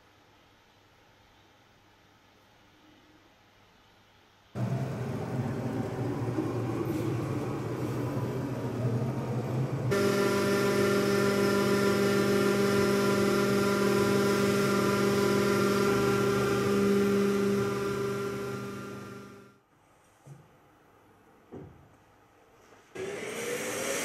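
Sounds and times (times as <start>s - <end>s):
vacuum airflow hiss: 4.0s - 19.4s
milling machine spindle whine: 4.6s - 19.5s.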